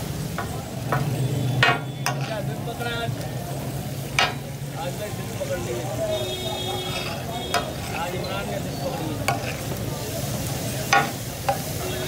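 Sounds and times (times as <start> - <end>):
chicken sizzling in oil: 0.0 - 12.0
metal spatulas scraping and clanking: 0.4 - 2.7, 4.1 - 4.5, 6.4 - 9.9, 10.8 - 11.8.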